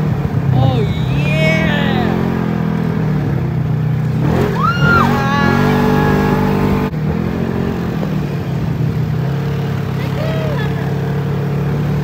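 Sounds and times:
vehicle engine running: 0:00.0 - 0:12.0
person shouting: 0:00.5 - 0:02.4, 0:04.5 - 0:06.7.

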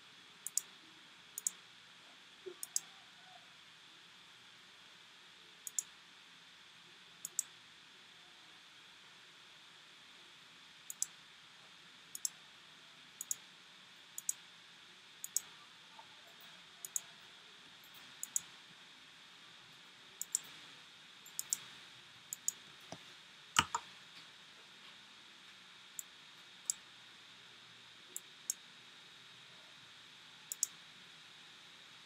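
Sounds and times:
faint steady hiss: 0:00.0 - 0:32.0
computer mouse clicks: 0:00.4 - 0:00.7, 0:01.4 - 0:01.6, 0:02.5 - 0:02.9, 0:05.6 - 0:05.9, 0:07.2 - 0:07.5, 0:10.9 - 0:11.1, 0:12.2 - 0:12.4, 0:13.2 - 0:13.4, 0:14.2 - 0:14.4, 0:15.2 - 0:15.5, 0:16.4 - 0:17.1, 0:17.8 - 0:18.5, 0:20.2 - 0:20.6, 0:21.3 - 0:21.7, 0:22.3 - 0:23.0, 0:23.6 - 0:23.9, 0:30.5 - 0:30.8.

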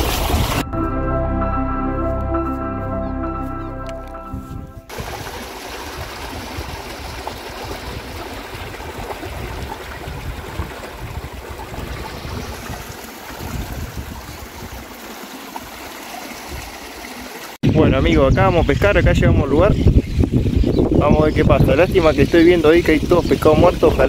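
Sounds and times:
creek water rushing: 0:04.9 - 0:17.6.

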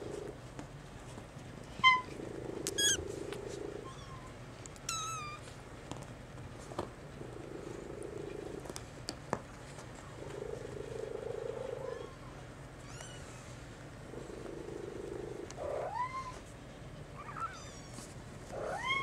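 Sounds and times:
low purring: 0:00.0 - 0:00.4, 0:01.9 - 0:03.9, 0:07.2 - 0:08.8, 0:10.0 - 0:12.2, 0:14.1 - 0:16.0, 0:18.5 - 0:19.0.

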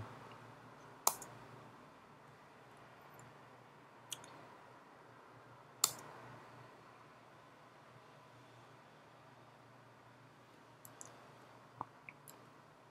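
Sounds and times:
faint low hum: 0:00.0 - 0:12.9
computer mouse clicks: 0:01.0 - 0:01.4, 0:05.8 - 0:06.1, 0:10.8 - 0:11.2.

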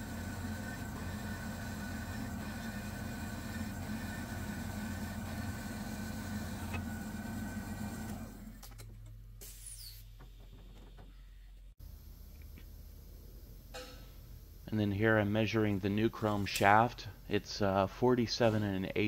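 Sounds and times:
bandsaw hum and whine: 0:00.0 - 0:08.7.

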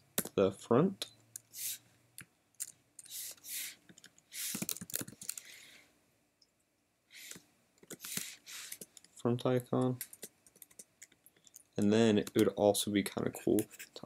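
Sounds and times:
short soft hissing: 0:01.5 - 0:01.9, 0:03.1 - 0:04.7, 0:08.0 - 0:08.8
keyboard typing: 0:09.8 - 0:12.6.

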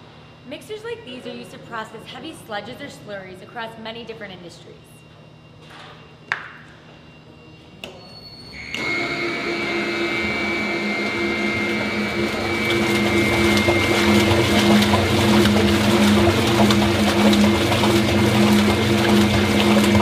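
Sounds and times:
mixer motor humming and whining: 0:07.2 - 0:20.0
blades churning contents: 0:08.6 - 0:20.0.

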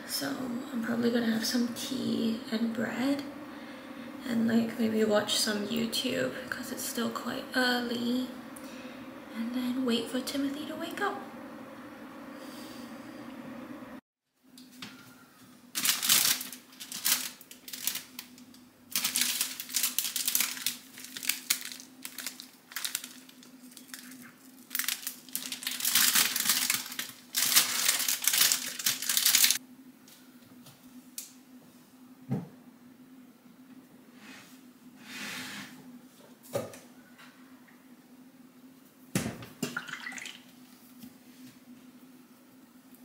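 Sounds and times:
low steady hum: 0:00.0 - 0:35.0
plastic bag crinkling: 0:15.7 - 0:29.6.

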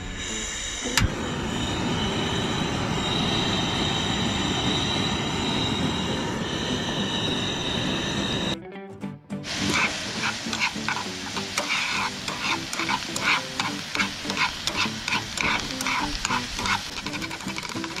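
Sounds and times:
onions and garlic sizzling in a pan: 0:09.4 - 0:18.0
metal tongs scraping a pan: 0:09.5 - 0:18.0.

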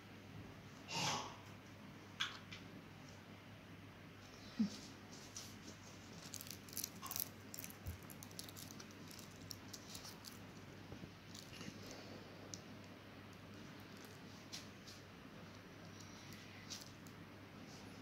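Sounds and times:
steady low hum: 0:00.0 - 0:18.0
plastic cone clicks and crinkles: 0:06.1 - 0:10.6, 0:11.3 - 0:12.7.

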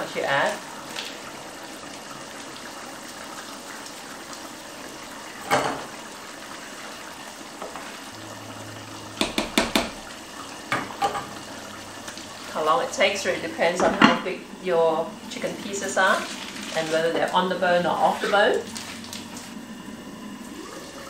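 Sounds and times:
utensil knock on wok: 0:09.2 - 0:10.0.

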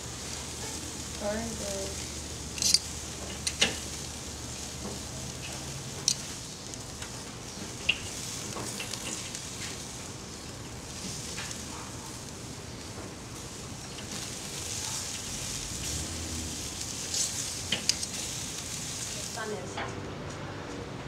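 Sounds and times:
chicken sizzling on grill: 0:00.0 - 0:21.0
tongs clicking against grate: 0:02.5 - 0:03.8, 0:05.4 - 0:06.3, 0:17.1 - 0:18.2.

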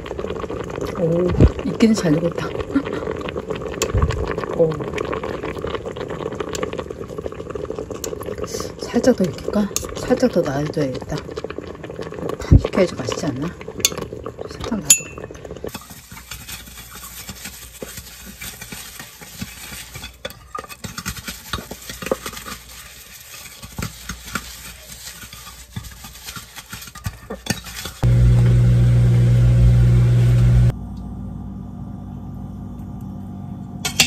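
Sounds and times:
utensil clinking and scraping: 0:15.0 - 0:28.1
food sizzling in a pan: 0:15.6 - 0:30.7
loud low hum: 0:28.0 - 0:34.0.

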